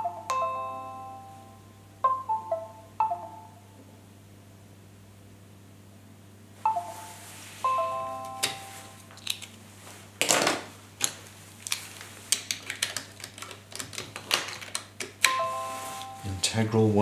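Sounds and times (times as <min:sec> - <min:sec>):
computer device chime: 0:00.0 - 0:03.6, 0:06.7 - 0:09.1, 0:15.2 - 0:16.6.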